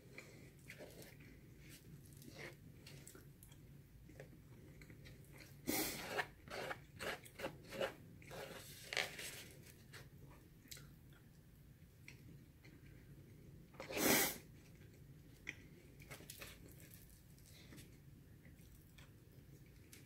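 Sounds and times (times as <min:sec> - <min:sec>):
person chewing food: 0:00.0 - 0:08.6, 0:14.6 - 0:20.0.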